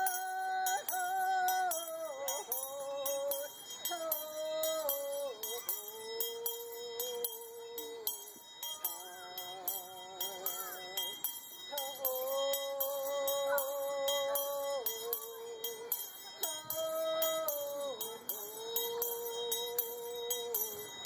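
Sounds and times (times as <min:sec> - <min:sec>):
hand bells ringing: 0:00.0 - 0:21.0
woman singing long notes: 0:00.0 - 0:21.0.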